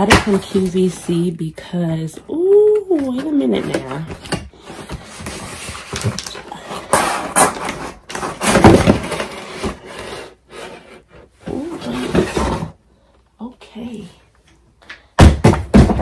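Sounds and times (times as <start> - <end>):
cardboard box scraping: 6.9 - 12.8.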